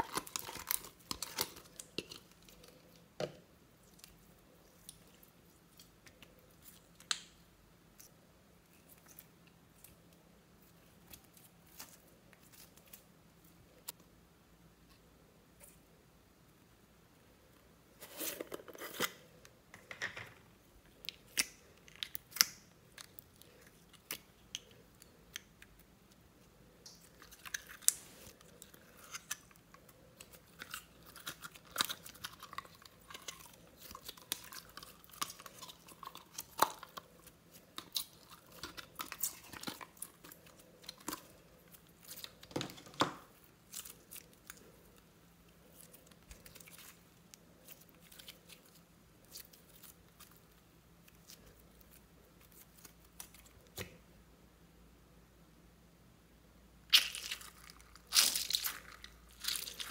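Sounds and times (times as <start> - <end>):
slime crackling: 56.9 - 59.9.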